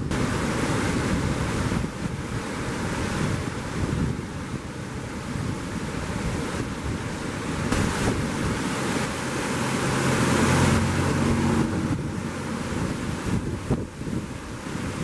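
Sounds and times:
floodwater rushing: 0.0 - 15.0
wind on microphone: 0.0 - 15.0
vehicle engine hum: 7.9 - 14.0.

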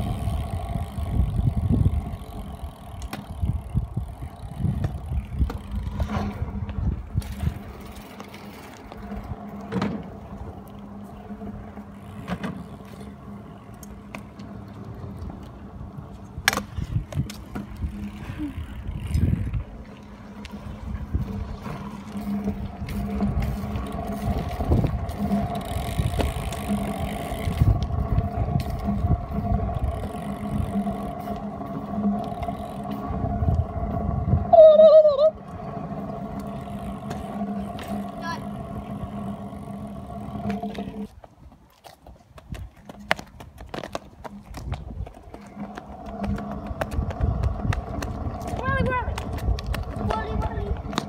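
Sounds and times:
wheels rolling over pavement: 0.0 - 51.0
footsteps on asphalt: 40.4 - 51.0.

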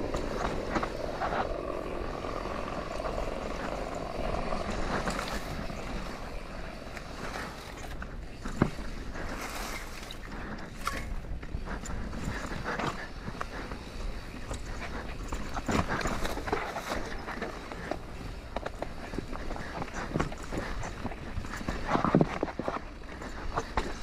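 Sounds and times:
bike rattling and clicking: 0.0 - 24.0
tyres rolling over dirt and rocks: 0.0 - 24.0
wind rushing over microphone: 0.0 - 24.0.

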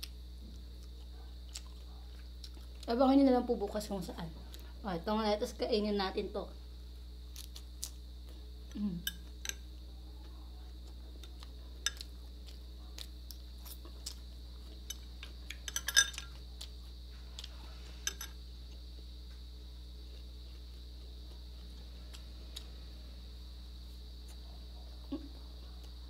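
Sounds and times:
crickets chirping: 0.0 - 26.0
metal spoon clinking on glass: 15.7 - 16.3.

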